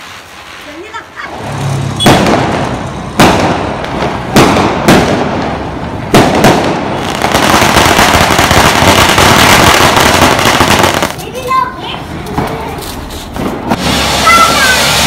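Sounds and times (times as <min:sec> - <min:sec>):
firework hissing spray: 0:00.0 - 0:02.9, 0:12.9 - 0:15.0
fireworks sharp bangs: 0:00.0 - 0:15.0.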